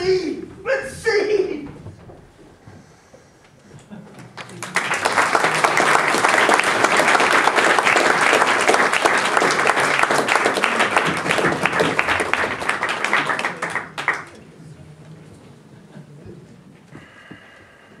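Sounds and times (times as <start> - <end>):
audience applauding: 4.1 - 14.4.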